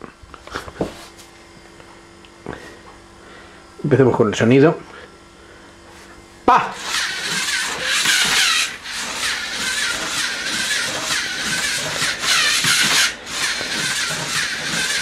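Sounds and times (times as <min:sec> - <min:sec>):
robot servo motors whirring: 0:06.8 - 0:15.0.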